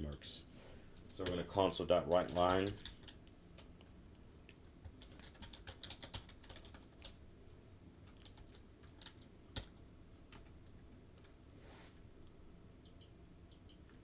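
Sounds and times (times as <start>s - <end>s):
keystrokes on computer keyboard: 2.2s - 3.8s, 4.7s - 7.2s, 8.0s - 10.6s, 12.8s - 14.0s.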